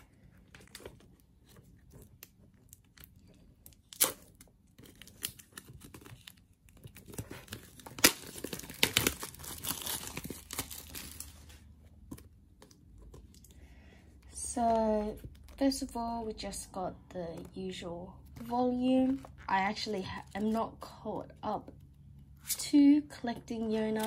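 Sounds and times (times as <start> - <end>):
plastic wrap crinkling and tearing: 0.0 - 13.6.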